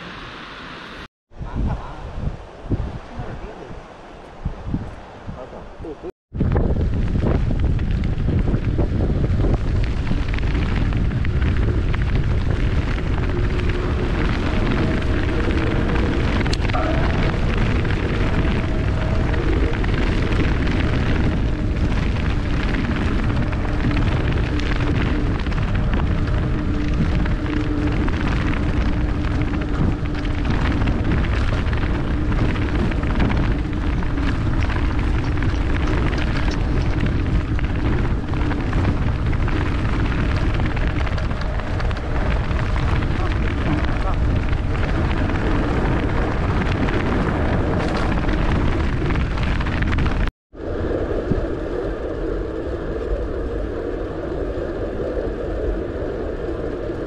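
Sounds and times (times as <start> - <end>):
wind buffeting microphone: 1.3 - 57.0
faint wavering hum: 9.4 - 49.2.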